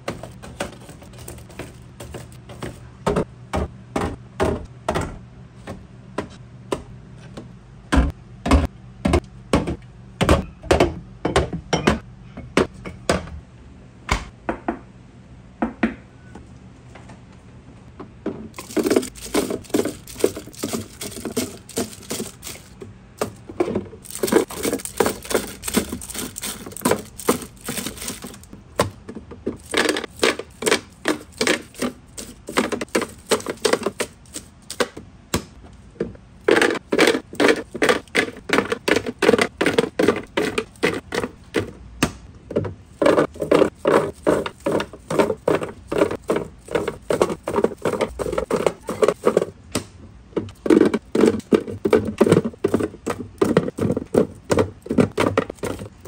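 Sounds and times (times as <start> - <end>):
candies clattering into plastic bins: 0.0 - 3.2, 18.5 - 35.0, 36.4 - 41.8, 42.5 - 49.6, 50.4 - 56.0.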